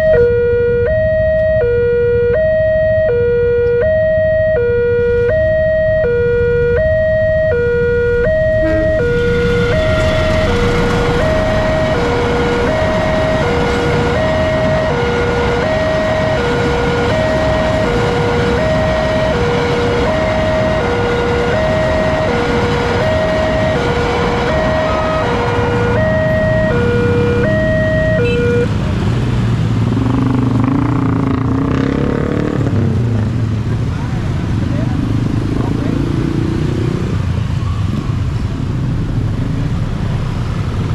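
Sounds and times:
two-tone level crossing alarm: 0:00.0 - 0:28.7
motorcycle engines revving: 0:00.0 - 0:40.9
freight train passing: 0:08.2 - 0:27.2.

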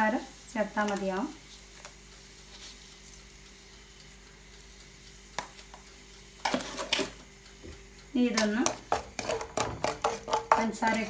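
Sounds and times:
food sizzling in a pan: 0:00.0 - 0:11.0
utensil clattering against pan: 0:08.4 - 0:11.0.

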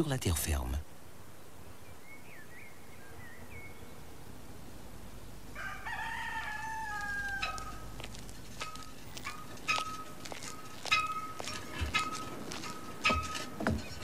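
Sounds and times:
rooster crowing: 0:05.5 - 0:07.9.

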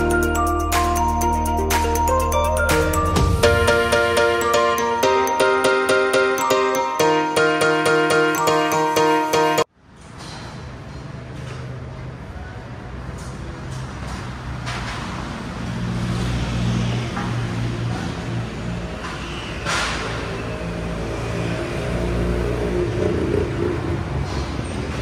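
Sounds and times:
intro music: 0:00.0 - 0:09.7
street ambience: 0:00.0 - 0:25.0.

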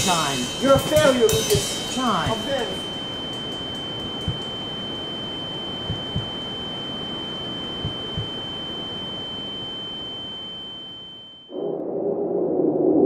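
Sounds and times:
heartbeat thumps: 0:00.0 - 0:02.7, 0:04.2 - 0:04.5, 0:05.9 - 0:06.3, 0:07.8 - 0:08.3
high-pitched ringing tone: 0:00.0 - 0:11.9.

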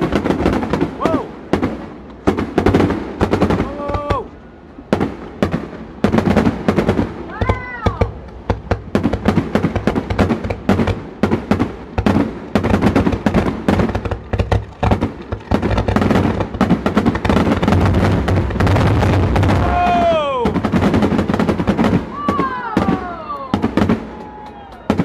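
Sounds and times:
fireworks bursting: 0:00.0 - 0:25.0.

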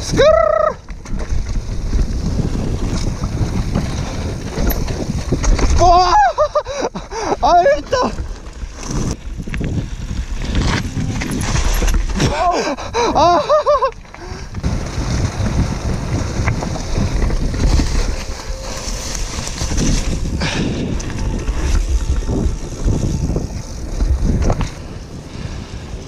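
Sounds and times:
bike tyres rumbling over gravel: 0:00.0 - 0:26.0
wind buffeting microphone: 0:00.0 - 0:26.0
person shouting: 0:00.1 - 0:00.8, 0:05.8 - 0:06.4, 0:12.3 - 0:13.5.

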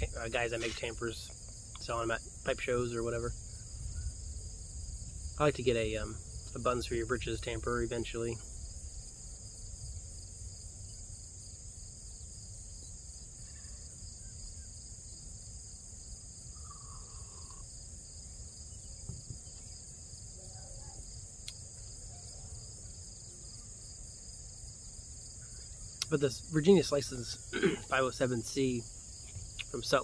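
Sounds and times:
insect chorus drone: 0:00.0 - 0:30.0.

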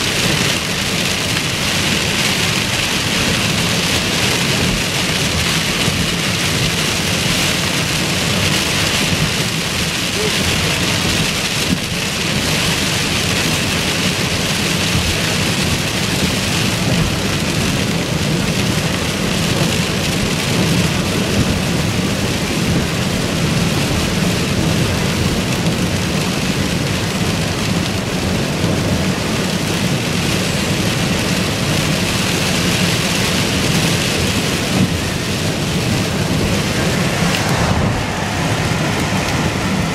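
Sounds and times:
heavy rain on car roof: 0:00.0 - 0:39.9
tyre and road rumble: 0:31.9 - 0:39.9.

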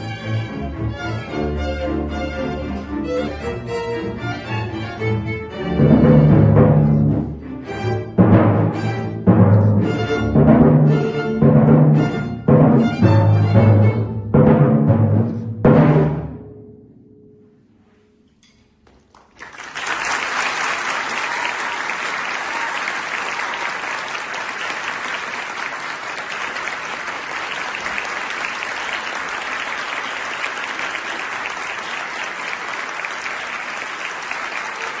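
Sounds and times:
audience applauding: 0:18.9 - 0:35.0.

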